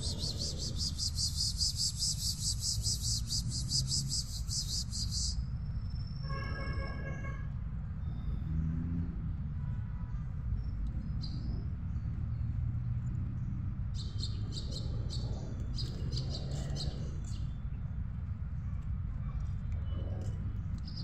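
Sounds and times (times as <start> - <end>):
insect chirping: 0.0 - 6.2.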